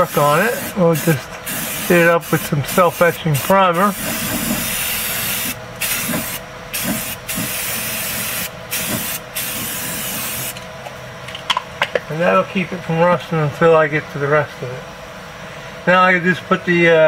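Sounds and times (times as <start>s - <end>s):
aerosol spray can hissing: 0.2s - 10.6s.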